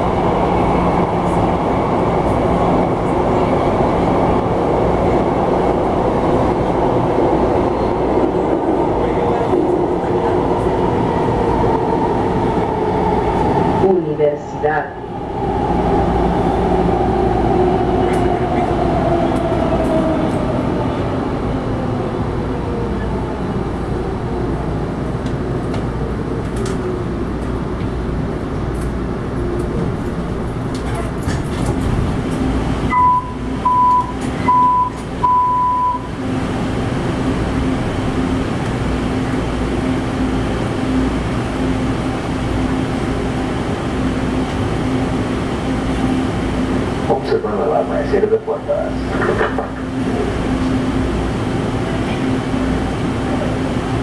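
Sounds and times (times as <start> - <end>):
train standing hum: 0.0 - 54.0.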